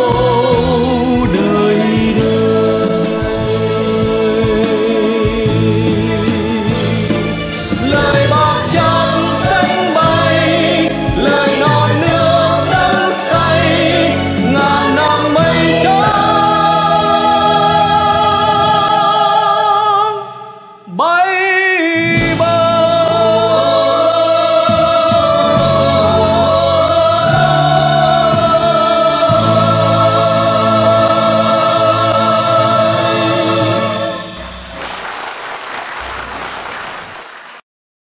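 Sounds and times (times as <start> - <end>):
choir singing: 0.0 - 20.6, 21.4 - 34.7
orchestra playing: 0.7 - 19.6, 22.1 - 36.6
man singing solo: 20.8 - 24.0.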